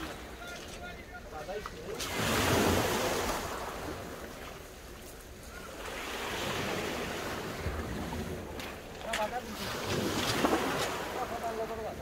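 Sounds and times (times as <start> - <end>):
waves washing on shingle beach: 0.0 - 12.0.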